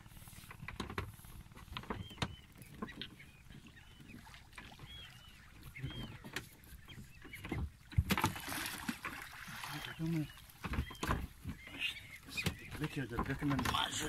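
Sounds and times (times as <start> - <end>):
water lapping hull: 0.0 - 14.0
fish splashing at surface: 8.0 - 10.0.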